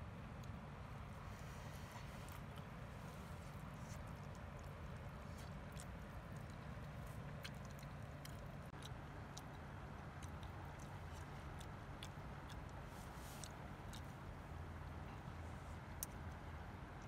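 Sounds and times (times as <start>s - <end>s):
low background rumble: 0.0s - 17.0s
mouth clicks and smacks: 3.5s - 14.2s.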